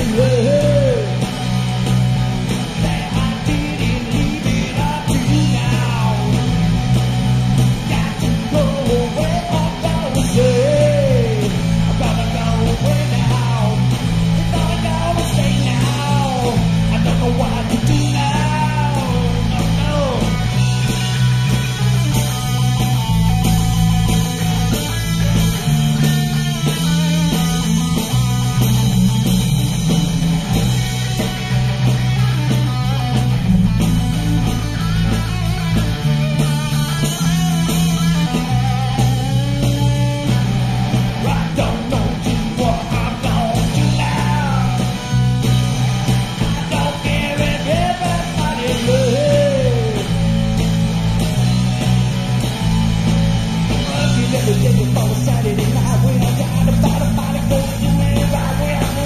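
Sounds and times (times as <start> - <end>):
man singing: 0.0 - 1.3, 2.8 - 6.5, 7.9 - 20.5, 41.2 - 45.0, 46.6 - 50.2, 53.8 - 59.0
bass guitar line: 0.0 - 59.0
rock band playing: 0.0 - 59.0.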